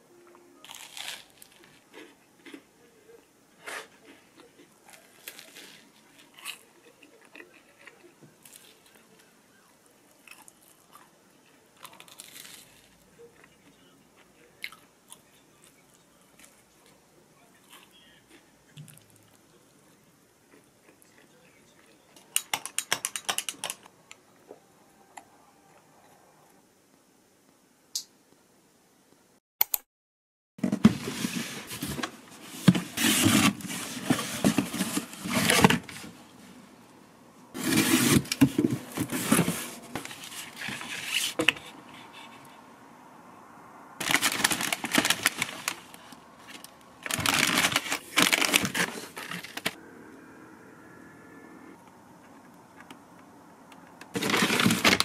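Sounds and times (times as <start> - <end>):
plastic bags crinkling: 0.6 - 1.9, 44.0 - 49.8, 54.1 - 55.0
cardboard flaps rustling and scraping: 30.6 - 36.2, 37.6 - 41.7, 47.1 - 49.8, 54.2 - 55.0.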